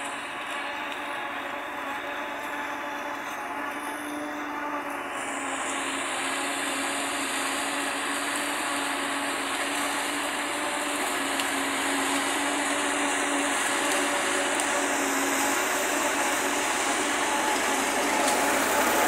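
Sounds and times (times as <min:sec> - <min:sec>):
forage harvester whirring: 0:00.0 - 0:19.0
tractor engine under load: 0:00.0 - 0:19.0.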